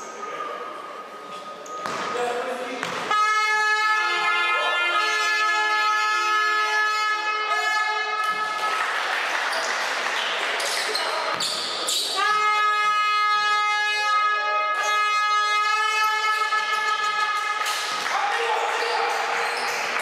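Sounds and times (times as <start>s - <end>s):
basketball bouncing on court: 1.8s - 2.2s, 2.8s - 3.1s
steady horn tone: 3.1s - 8.8s, 12.2s - 17.7s.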